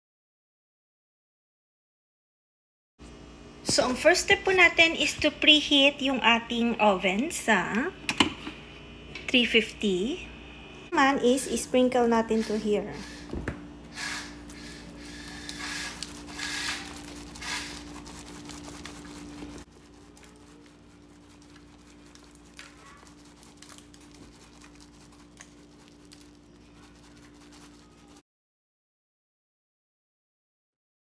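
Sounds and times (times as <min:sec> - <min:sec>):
low steady hum: 0:03.0 - 0:28.2
spice shaker rattling: 0:15.5 - 0:28.2.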